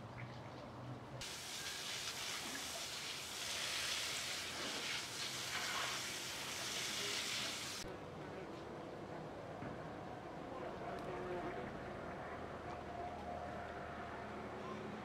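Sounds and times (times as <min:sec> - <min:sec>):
steady hiss: 0:01.2 - 0:07.9.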